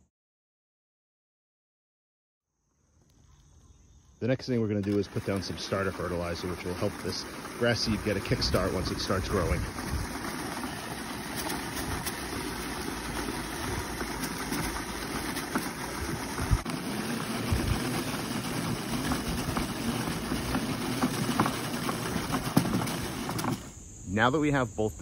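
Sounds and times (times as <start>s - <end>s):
spreader rattling whir: 4.3s - 23.8s.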